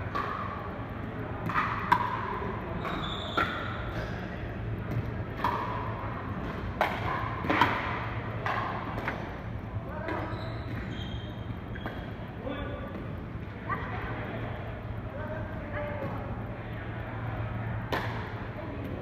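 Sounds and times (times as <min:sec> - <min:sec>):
high squeak: 0:10.2 - 0:11.4.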